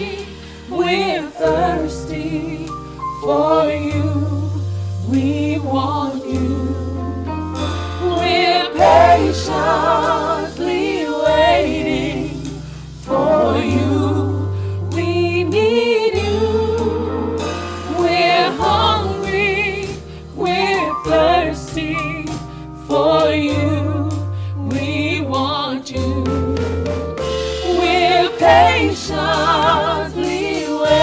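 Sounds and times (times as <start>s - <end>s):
drums: 0.0s - 31.0s
electric bass: 0.0s - 31.0s
voices singing gospel: 0.0s - 31.0s
keyboard: 6.1s - 25.1s.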